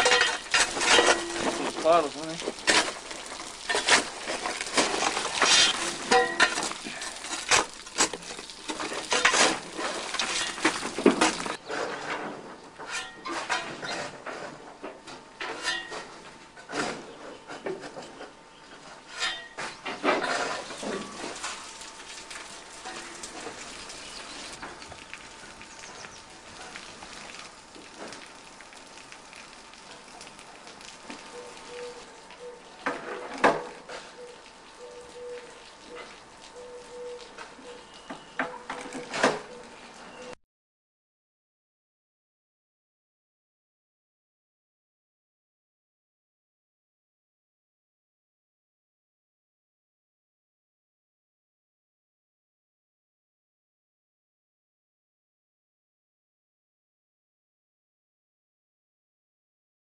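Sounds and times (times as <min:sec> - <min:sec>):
metallic clanks and scrapes: 0:00.0 - 0:21.6, 0:22.8 - 0:23.6.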